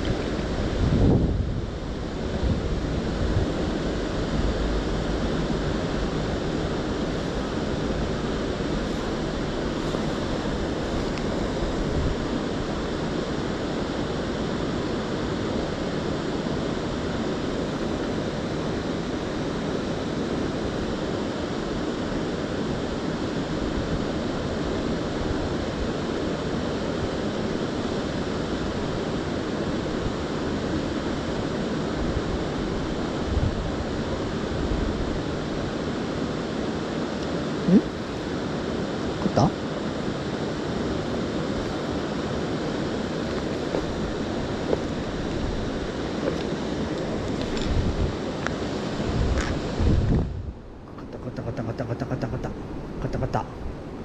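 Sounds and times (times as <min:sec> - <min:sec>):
river rushing: 0:00.0 - 0:54.0.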